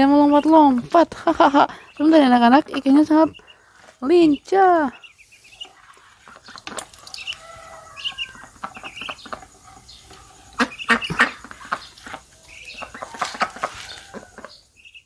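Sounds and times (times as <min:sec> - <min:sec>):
young ducks peeping: 0:00.0 - 0:15.0
sharp knocks and splashy clatter: 0:05.8 - 0:07.4.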